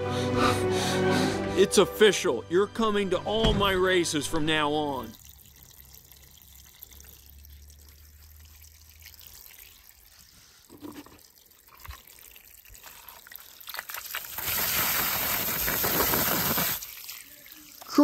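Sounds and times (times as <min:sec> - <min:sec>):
water trickling and dripping: 0:04.8 - 0:14.5, 0:16.8 - 0:18.0.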